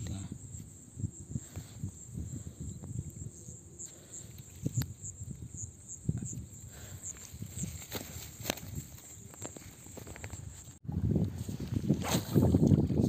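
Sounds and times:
insects trilling: 0.0s - 10.8s.

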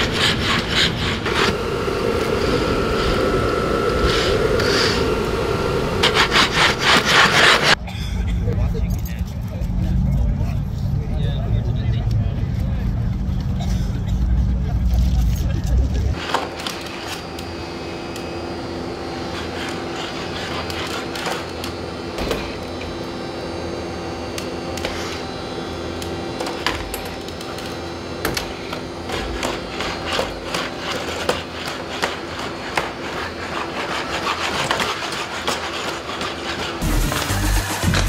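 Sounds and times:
electric motors whining: 0.0s - 7.8s, 16.1s - 38.0s.

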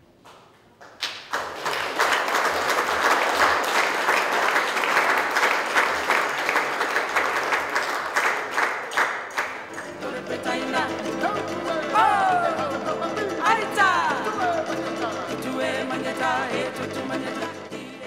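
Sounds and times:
audience applauding: 0.8s - 14.8s.

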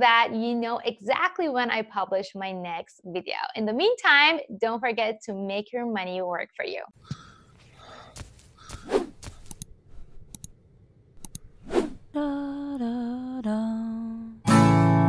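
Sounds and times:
strummed acoustic guitar chord: 14.4s - 15.0s.

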